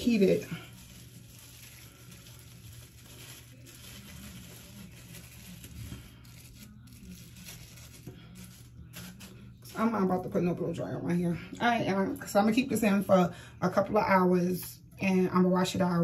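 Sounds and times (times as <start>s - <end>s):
plastic shower cap crinkling: 0.0s - 9.4s.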